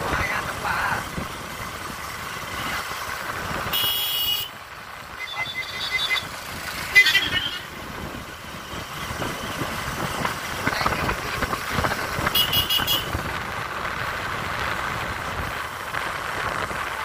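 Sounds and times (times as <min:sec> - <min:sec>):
vehicle running on rough track: 0:00.0 - 0:17.0
vehicle horn toot: 0:03.7 - 0:04.5, 0:06.9 - 0:07.7, 0:12.3 - 0:13.1.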